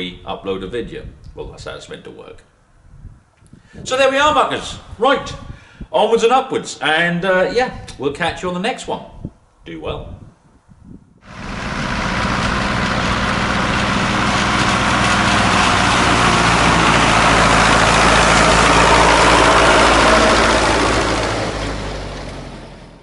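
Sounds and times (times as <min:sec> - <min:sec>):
quad bike engine running hard: 0:11.3 - 0:22.5.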